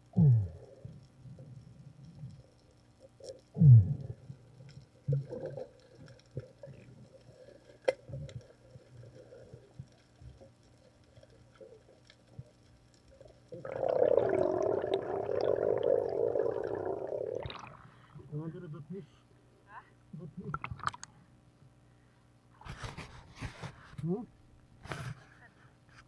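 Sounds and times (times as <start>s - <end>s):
faint underwater clicks: 0.0s - 17.8s, 20.4s - 21.2s
diver's exhaled bubbles rushing: 13.5s - 17.9s, 20.5s - 21.1s.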